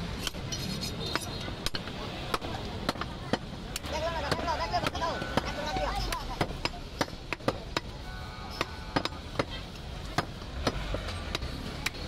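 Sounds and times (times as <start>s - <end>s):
cleaver chopping meat on wood: 1.1s - 12.0s.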